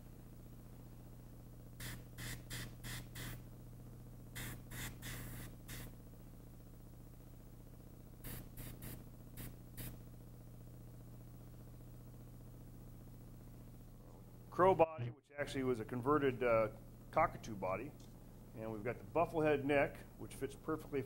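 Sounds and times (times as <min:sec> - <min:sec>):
steady low hum: 0:00.0 - 0:21.0
airbrush spraying hiss: 0:01.8 - 0:03.4, 0:04.4 - 0:06.0, 0:08.2 - 0:10.0.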